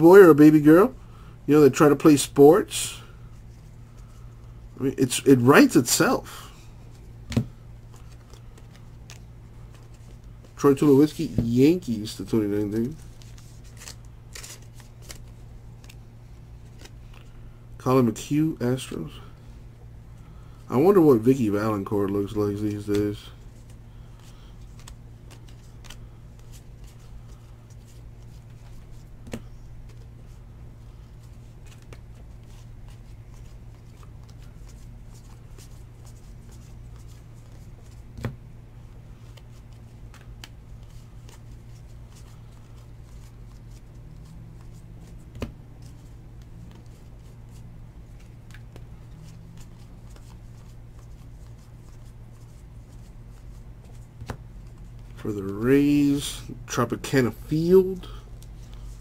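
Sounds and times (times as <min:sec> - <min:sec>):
steady low hum: 0:00.0 - 0:59.0
trading cards flipped by hand: 0:06.9 - 0:11.6, 0:12.8 - 0:17.4, 0:22.2 - 0:38.4, 0:39.1 - 0:55.2.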